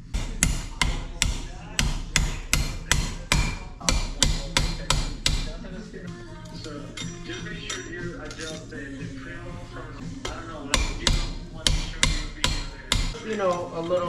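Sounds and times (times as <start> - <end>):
hammer tapping metal tool: 0.1 - 5.6, 10.2 - 14.0.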